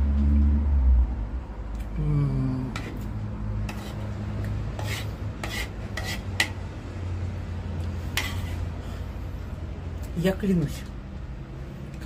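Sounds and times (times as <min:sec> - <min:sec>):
cutlery scraping a plate: 0:02.8 - 0:04.1, 0:04.8 - 0:06.6, 0:08.0 - 0:08.7.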